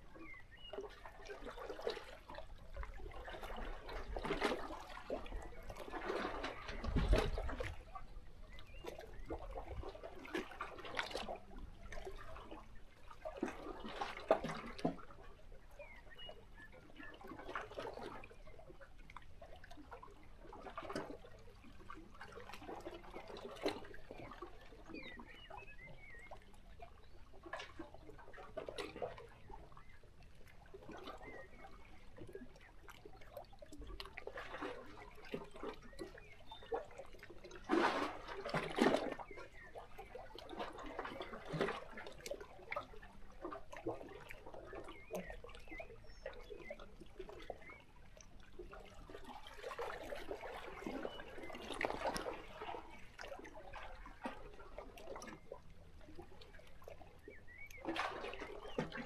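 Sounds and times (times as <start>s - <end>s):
faint bird chirps: 24.8s - 27.2s, 57.1s - 58.9s.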